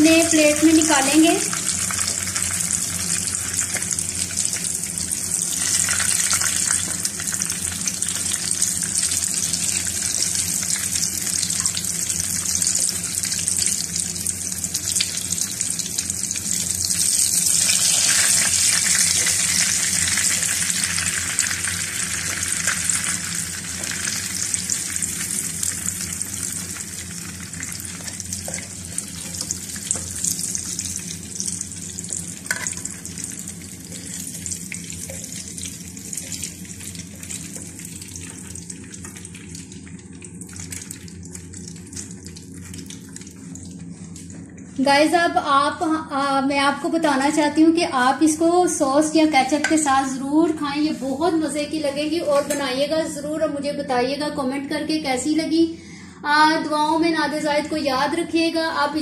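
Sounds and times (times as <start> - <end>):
oil sizzling in a pan: 0.0 - 44.0.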